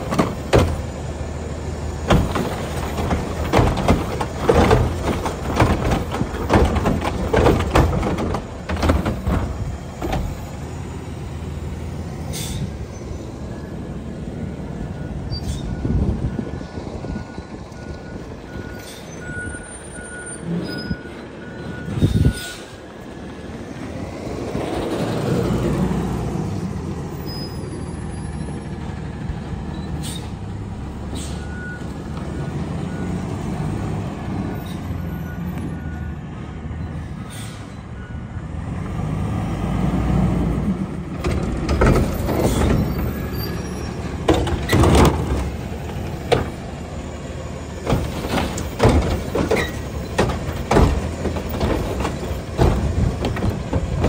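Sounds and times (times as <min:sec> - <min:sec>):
bin clanking and banging: 0:00.0 - 0:00.9, 0:02.0 - 0:10.4, 0:41.2 - 0:43.2, 0:44.2 - 0:45.6, 0:47.8 - 0:54.0
diesel truck engine running: 0:00.0 - 0:54.0.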